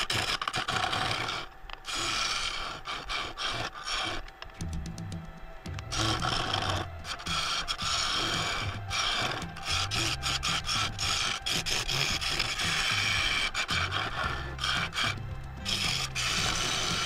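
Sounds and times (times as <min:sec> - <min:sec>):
lathe tool scraping wood: 0:00.0 - 0:04.6, 0:05.8 - 0:17.0.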